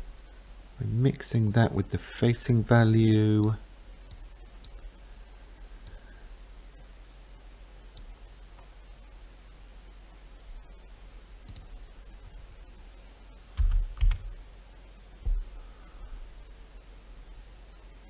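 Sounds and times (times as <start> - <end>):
faint steady background noise: 0.0 - 18.0
dull thumps: 15.2 - 15.5.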